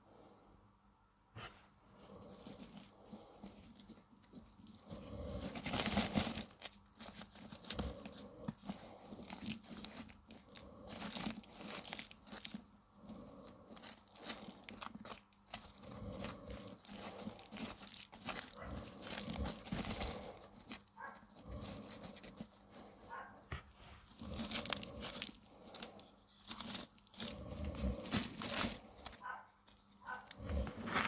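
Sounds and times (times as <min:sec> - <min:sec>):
pebbles and gravel crunching: 0:24.0 - 0:31.0.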